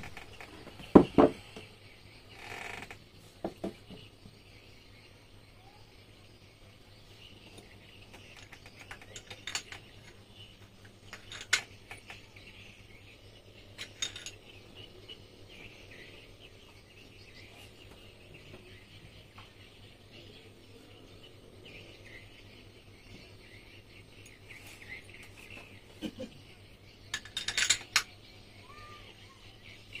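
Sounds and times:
faint steady chirping: 0:00.0 - 0:30.0
metal parts clinking: 0:08.2 - 0:12.3, 0:13.8 - 0:14.8, 0:27.1 - 0:28.2.

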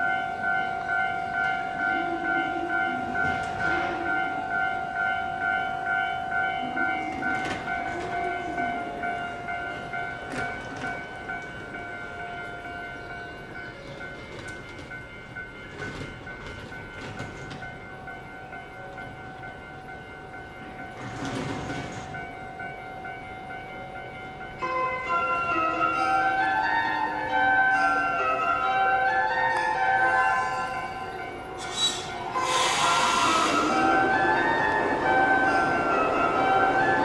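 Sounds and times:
electric train equipment whine: 0:00.0 - 0:37.0
brief air hiss: 0:31.6 - 0:33.8.

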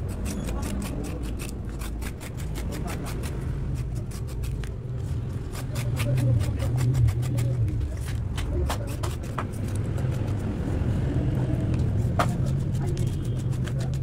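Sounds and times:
knife cutting vegetable: 0:00.0 - 0:10.5, 0:11.8 - 0:14.0.

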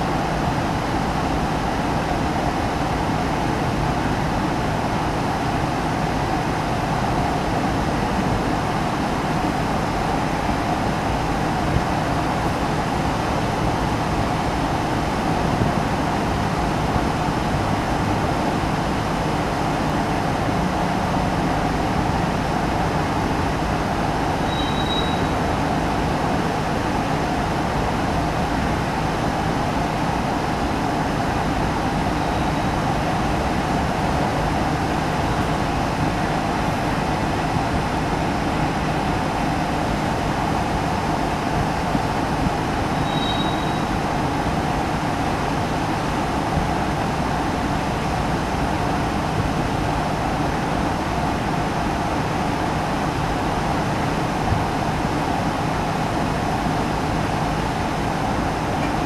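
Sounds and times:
train wheel squeals: 0:24.4 - 0:25.4, 0:32.2 - 0:32.8, 0:42.9 - 0:44.0.

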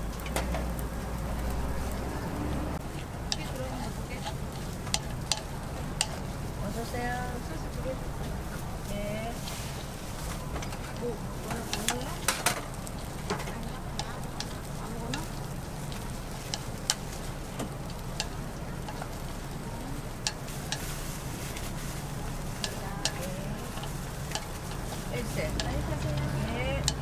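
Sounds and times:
batter sizzling in mould plate: 0:02.8 - 0:27.0.

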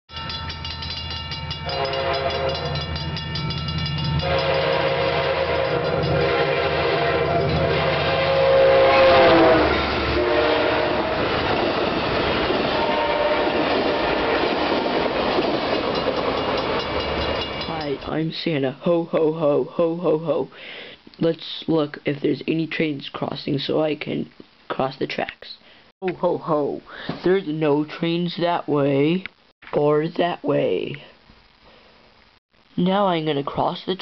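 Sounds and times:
train cars rumbling and clacking: 0:00.1 - 0:18.2
train horn blasts: 0:01.6 - 0:03.0, 0:04.1 - 0:11.4, 0:12.7 - 0:14.6.

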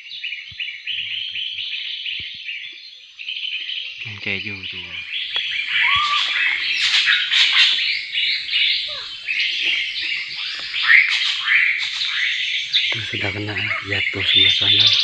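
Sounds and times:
small birds chattering: 0:00.0 - 0:15.0.

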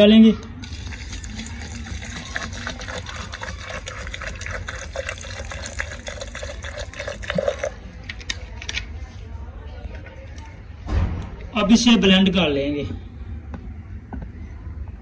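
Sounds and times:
water pouring into plastic jar: 0:00.6 - 0:08.4.

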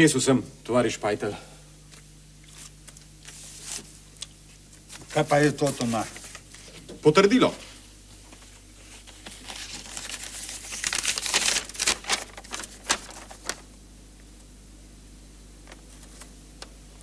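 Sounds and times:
paper rustling and crinkling: 0:02.4 - 0:13.8, 0:15.6 - 0:16.4.

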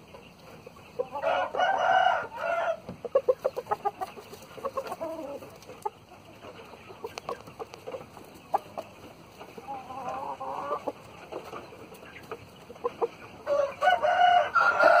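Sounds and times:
chickens clucking: 0:00.0 - 0:15.0
rooster crowing: 0:01.2 - 0:02.9, 0:13.4 - 0:15.0.

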